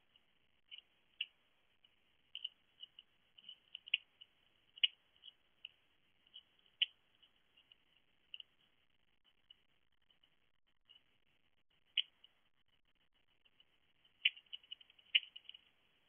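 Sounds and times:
hedgehog eating clicks and crunches: 0:00.0 - 0:08.7, 0:13.4 - 0:16.0.

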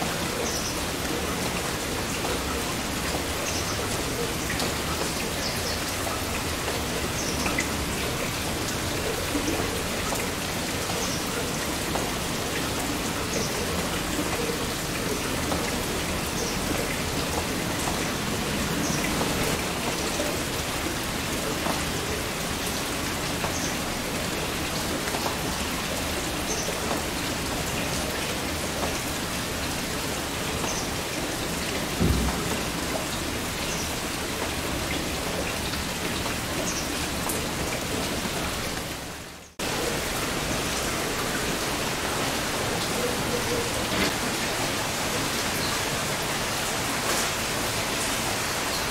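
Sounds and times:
heavy rain falling: 0:00.0 - 0:48.9
low thump: 0:32.0 - 0:32.6.

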